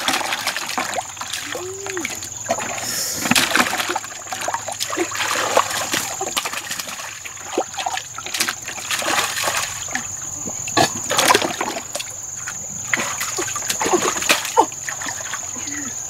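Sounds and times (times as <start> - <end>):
splashing in shallow water: 0.0 - 16.0.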